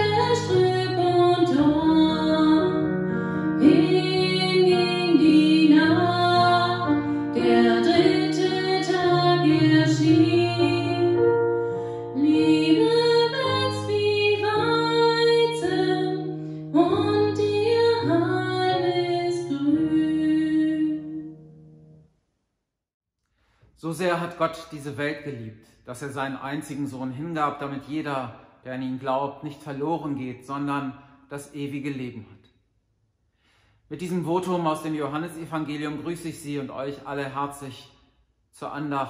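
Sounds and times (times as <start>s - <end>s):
woman singing slow song: 0.0s - 11.4s, 12.1s - 21.4s.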